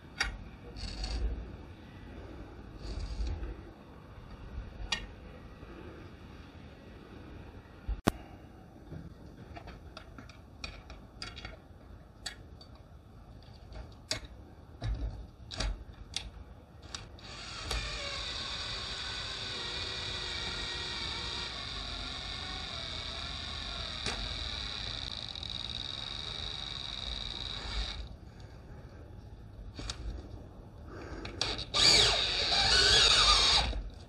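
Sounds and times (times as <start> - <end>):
drill whining: 16.8 - 28.1, 31.4 - 33.9.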